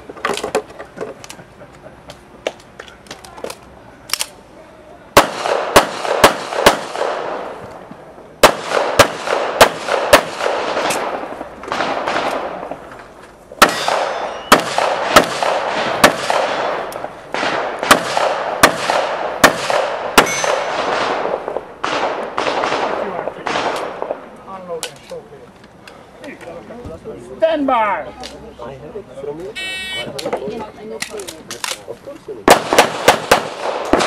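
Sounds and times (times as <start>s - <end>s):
pistol shots with echo: 5.2s - 7.5s, 8.4s - 12.8s, 13.6s - 24.2s, 32.4s - 34.0s.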